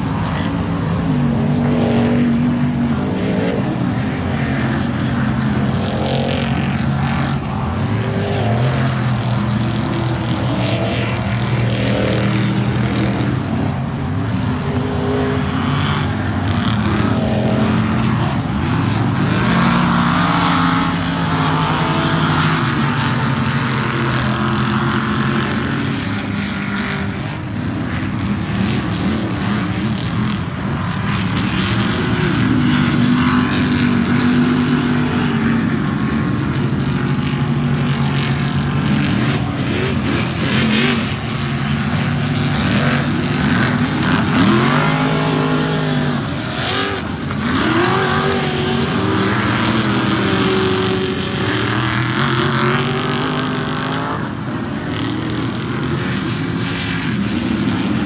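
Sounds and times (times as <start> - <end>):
race car engines revving: 0.0 - 58.0.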